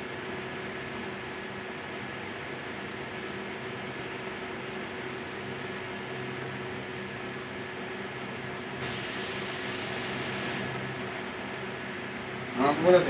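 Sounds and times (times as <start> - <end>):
steady hiss: 8.8 - 10.8.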